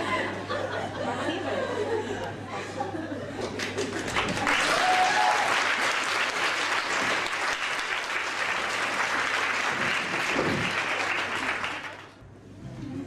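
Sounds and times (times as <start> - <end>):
audience applauding: 3.4 - 12.2.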